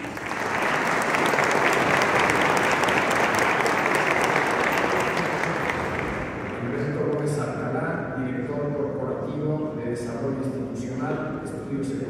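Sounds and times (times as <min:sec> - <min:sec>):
audience applause: 0:00.0 - 0:06.7.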